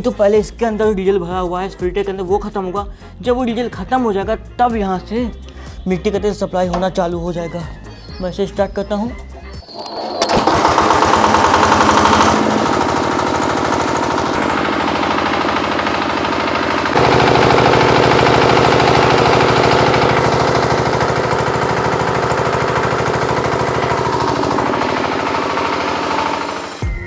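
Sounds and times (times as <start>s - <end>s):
diesel generator engine running: 9.9s - 26.8s.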